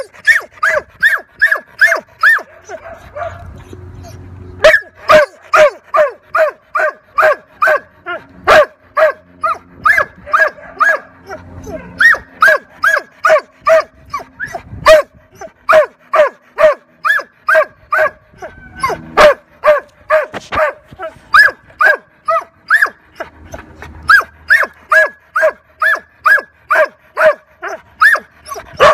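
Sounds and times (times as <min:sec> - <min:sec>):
dog barking: 0:00.0 - 0:03.4, 0:04.6 - 0:07.9, 0:08.5 - 0:13.9, 0:15.7 - 0:18.2, 0:18.8 - 0:23.0, 0:24.1 - 0:28.2.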